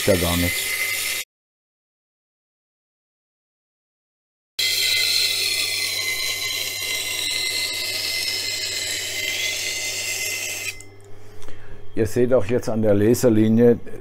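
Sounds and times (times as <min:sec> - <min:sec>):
grinder motor hum: 0:00.0 - 0:01.2, 0:04.6 - 0:10.9
knife scraping on grinding wheel: 0:00.0 - 0:01.2, 0:04.6 - 0:11.0.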